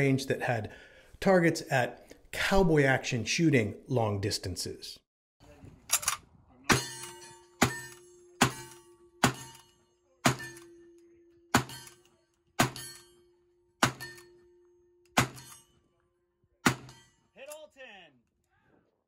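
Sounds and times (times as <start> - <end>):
rifle shots echoing: 15.2 - 15.6, 16.6 - 16.9.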